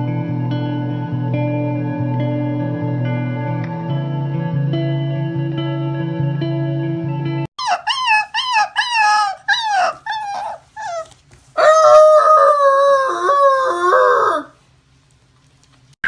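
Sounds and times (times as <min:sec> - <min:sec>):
puppies yipping: 0:07.6 - 0:12.5
puppy howling: 0:07.6 - 0:14.6.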